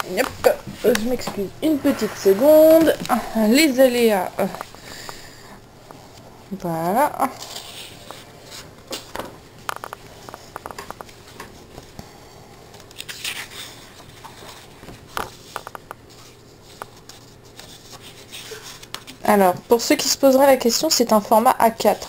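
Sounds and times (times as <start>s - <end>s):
paper pages rustling: 7.2s - 12.0s, 12.7s - 19.2s.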